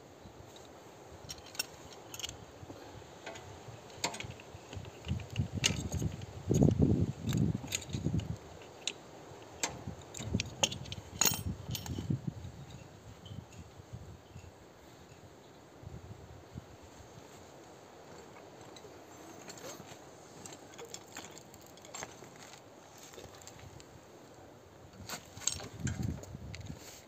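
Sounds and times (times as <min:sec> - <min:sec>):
wrench and steel parts clinking: 0:00.5 - 0:02.5, 0:03.2 - 0:15.2, 0:25.1 - 0:26.7.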